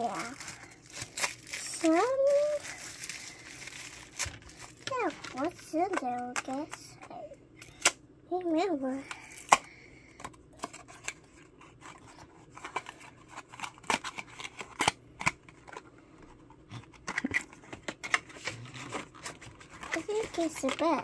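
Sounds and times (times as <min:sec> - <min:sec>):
cardboard packaging being handled: 0:00.0 - 0:05.8, 0:10.6 - 0:21.0.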